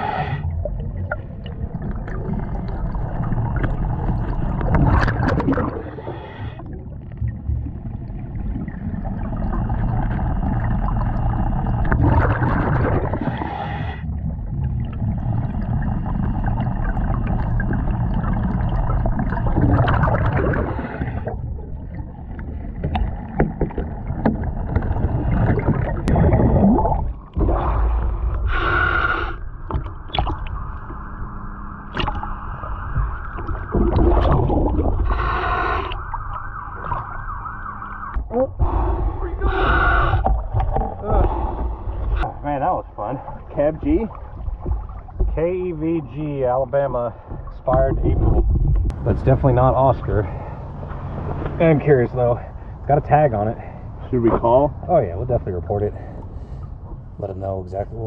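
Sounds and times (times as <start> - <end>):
regulator breathing underwater: 0.0 - 0.8, 5.6 - 6.9, 13.1 - 14.2, 20.4 - 21.4, 24.9 - 29.6, 34.9 - 36.1, 38.6 - 42.3, 55.9 - 57.1.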